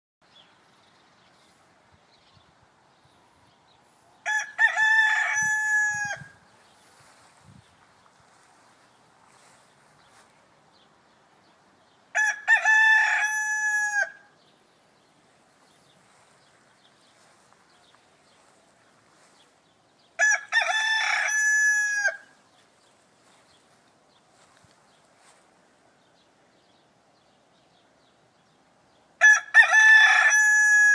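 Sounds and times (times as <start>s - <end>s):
rooster crowing: 4.2s - 6.4s, 12.1s - 14.3s, 20.2s - 22.4s, 29.2s - 30.9s.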